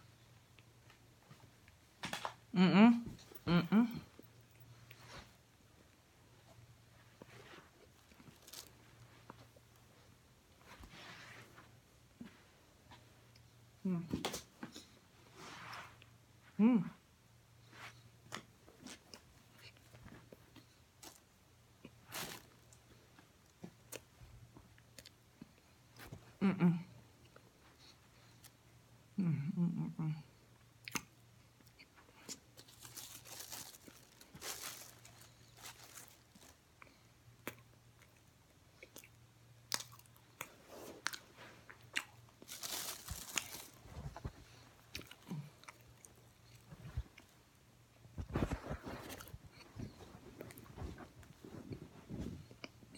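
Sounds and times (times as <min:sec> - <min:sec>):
chewing crunchy food: 0:30.8 - 0:47.4.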